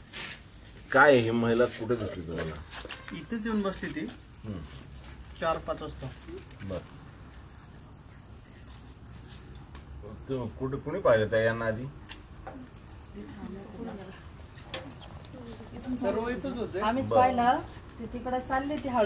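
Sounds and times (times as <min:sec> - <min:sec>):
cricket chirping: 0:00.0 - 0:19.0
people talking: 0:12.5 - 0:19.0.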